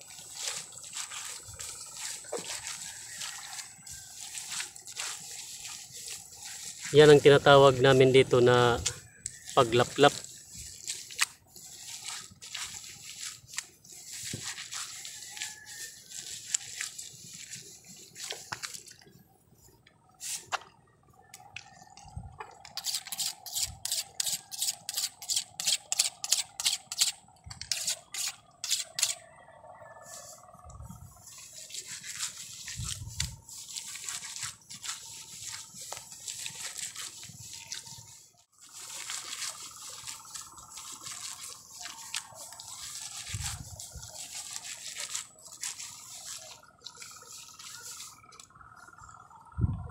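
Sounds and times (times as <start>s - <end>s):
wet mud squelching: 0.0s - 19.1s, 31.2s - 49.0s
sharp blade strokes: 22.8s - 29.2s.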